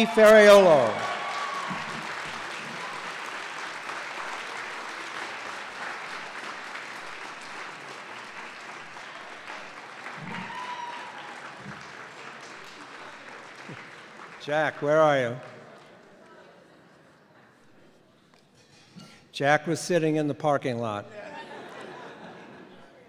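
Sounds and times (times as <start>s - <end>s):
audience applauding: 0.0s - 16.5s.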